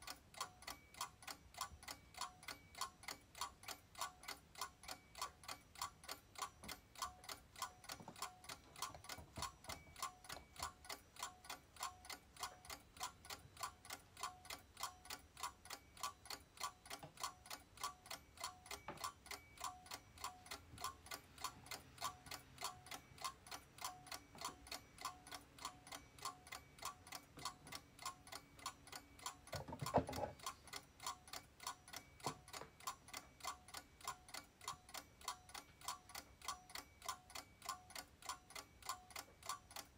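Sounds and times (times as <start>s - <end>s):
clock ticking: 0.0s - 39.9s.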